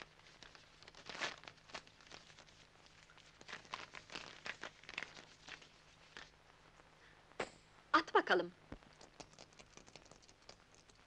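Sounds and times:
paper rustling and crinkling: 0.0s - 6.4s.

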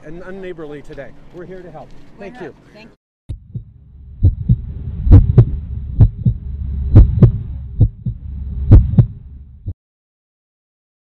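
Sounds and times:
steady low drone: 3.3s - 9.7s
heartbeat thumps: 3.3s - 9.8s.

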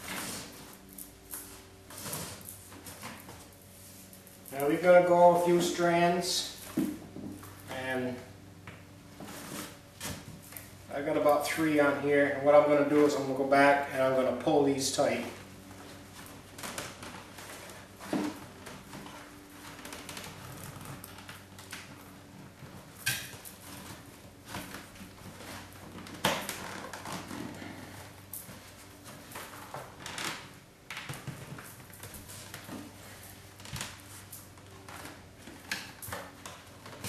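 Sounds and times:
paper cord rustling and scraping: 9.2s - 10.4s.

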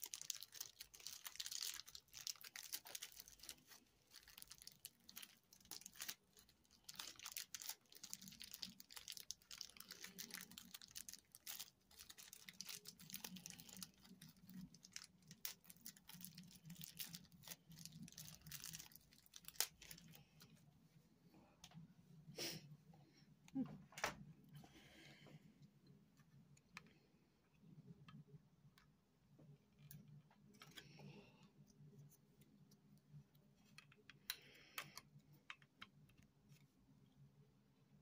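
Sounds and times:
plastic packaging crinkling: 0.0s - 20.5s
low steady hum: 0.0s - 38.0s.

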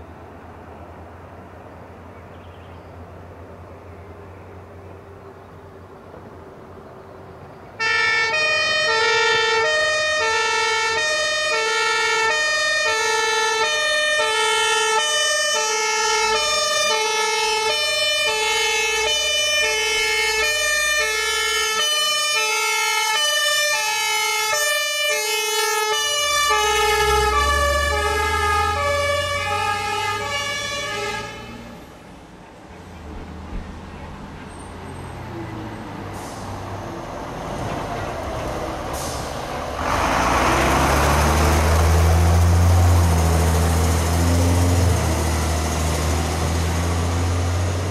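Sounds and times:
truck engine rumbling: 3.0s - 47.9s
two-tone emergency horn: 7.8s - 31.8s.

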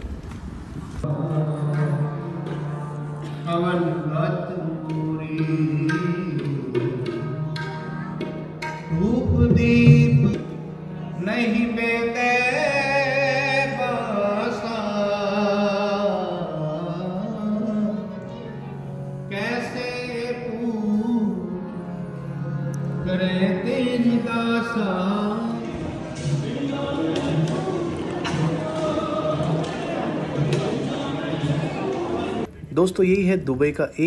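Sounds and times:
sustained instrumental accompaniment: 1.0s - 32.6s
person singing a devotional hymn: 23.0s - 32.4s.

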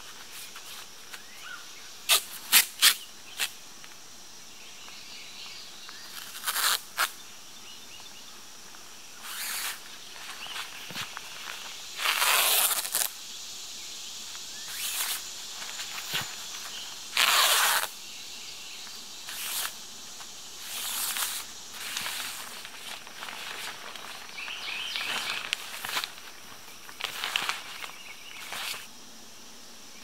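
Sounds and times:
tape ripping off roll: 2.1s - 3.5s, 6.1s - 7.2s, 9.2s - 9.8s, 12.0s - 13.2s, 14.6s - 18.0s, 19.2s - 19.8s, 20.6s - 24.2s, 27.0s - 28.9s
plastic tarp rustling: 20.6s - 28.9s.

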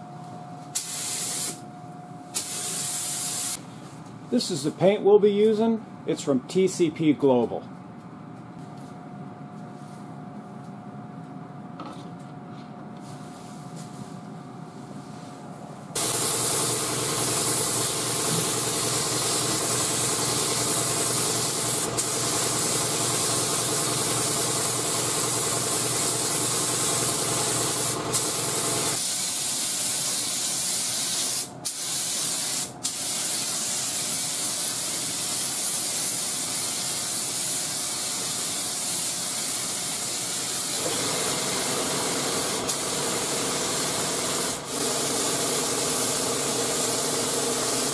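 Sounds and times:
paint spray gun hissing: 0.8s - 1.6s, 2.4s - 3.6s, 16.0s - 47.9s.

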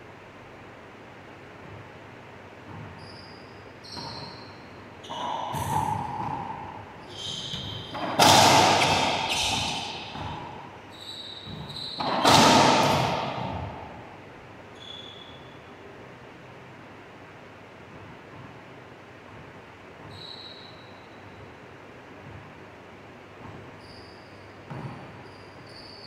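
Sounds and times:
sneakers squeaking on hardwood: 2.6s - 15.7s, 17.9s - 21.6s, 23.3s - 26.0s
racquet striking ball: 3.9s - 14.3s.

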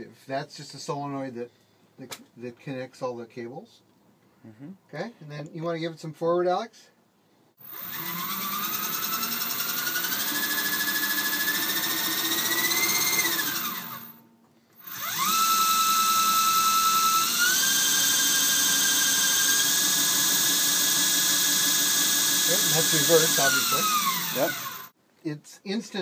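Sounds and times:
electric motor whine: 7.6s - 14.2s, 14.8s - 24.9s.

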